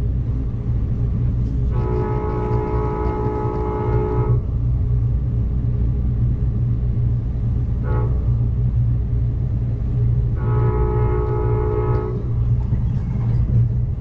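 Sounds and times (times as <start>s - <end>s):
train rumbling along rails: 0.0s - 14.0s
locomotive horn blasts: 1.6s - 4.5s, 7.8s - 8.4s, 10.4s - 12.4s.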